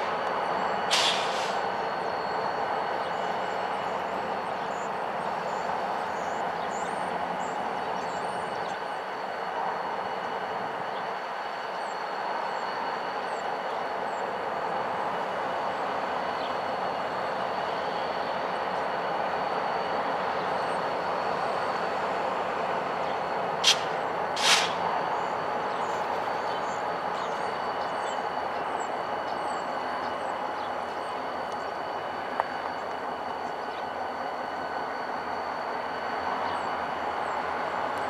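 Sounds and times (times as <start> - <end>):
locomotive engine rumbling: 0.0 - 38.0
short sharp sounds: 23.6 - 24.8.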